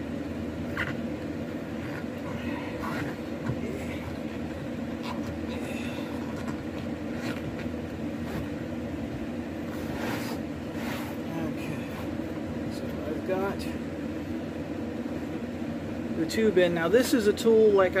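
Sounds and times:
electric fan humming: 0.0s - 18.0s.

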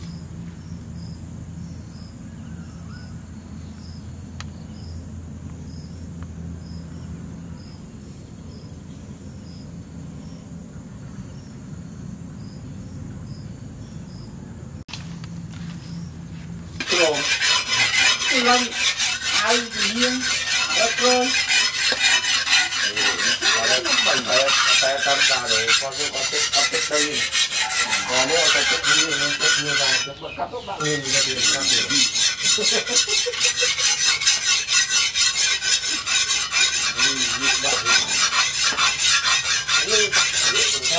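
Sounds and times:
faint outdoor background: 0.0s - 40.9s
hand file rasping on steel: 16.8s - 40.9s.

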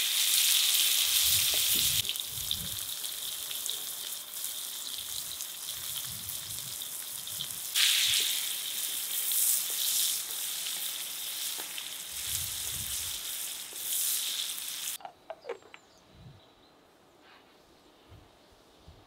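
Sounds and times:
vegetables sizzling in a pan: 0.0s - 15.0s.

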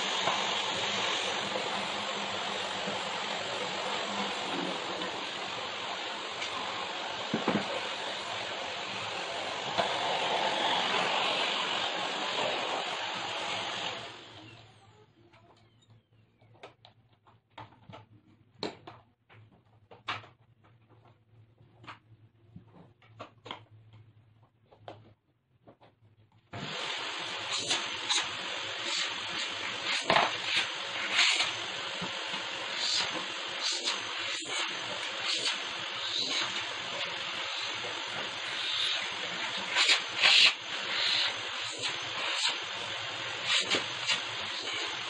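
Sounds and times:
vacuum cleaner running: 0.0s - 14.9s, 26.6s - 45.0s
vacuum wand knocking: 7.2s - 8.0s.

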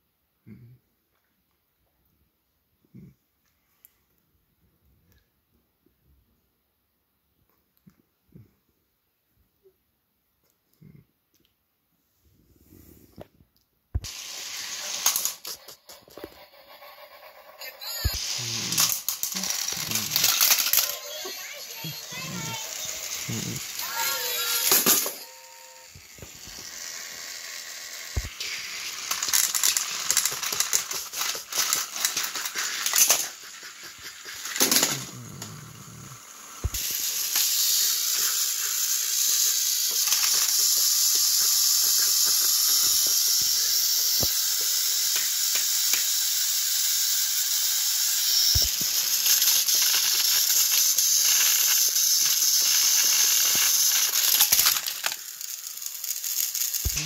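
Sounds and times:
toy train motors whirring: 14.0s - 57.0s.

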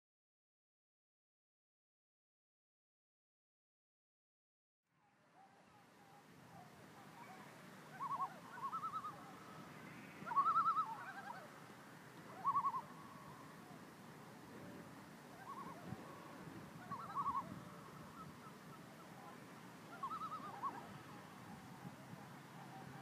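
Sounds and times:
faint background noise: 4.9s - 23.0s
bird quavering calls: 6.5s - 11.6s, 12.3s - 13.8s, 15.3s - 23.0s.

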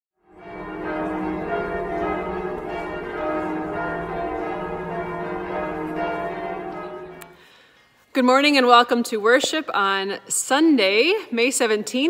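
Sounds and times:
church bells pealing: 0.2s - 7.5s.

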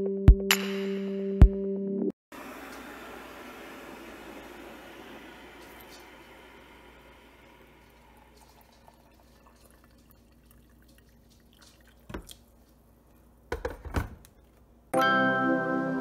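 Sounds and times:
water pouring into mug: 2.6s - 12.6s
kettle set down on counter: 13.5s - 14.2s.

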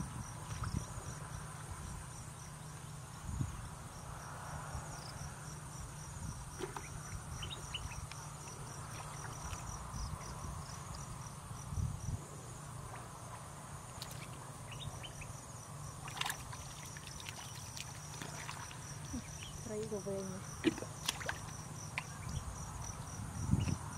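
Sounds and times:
insects chirping: 0.0s - 23.9s
splashes in muddy water: 8.4s - 11.0s, 16.0s - 19.5s, 20.5s - 22.3s.

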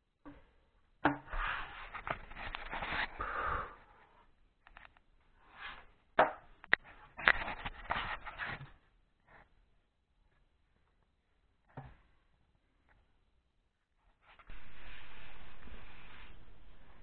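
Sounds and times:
board rubbing and scraping on wall: 14.2s - 17.0s.

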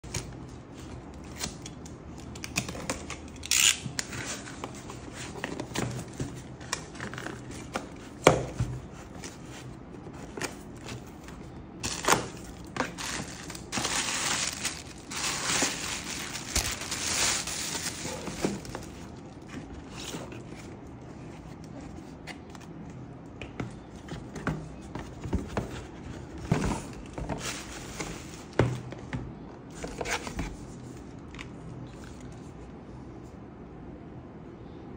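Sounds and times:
packaging crinkling and tearing: 1.3s - 5.4s, 10.5s - 20.5s.

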